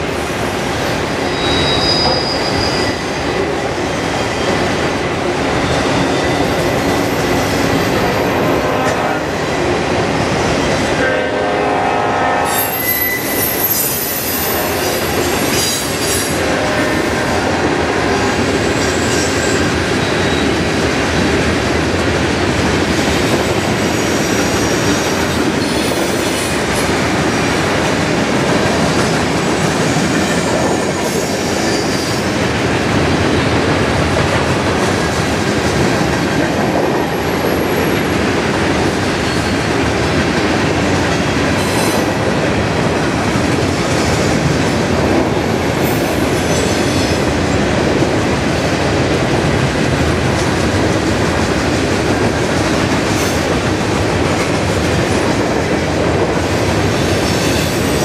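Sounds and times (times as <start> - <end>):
train wheels rumbling on rails: 0.0 - 58.0
high wheel squeal: 1.2 - 3.2, 12.5 - 16.4
sharp clicks from train cars: 39.8 - 58.0.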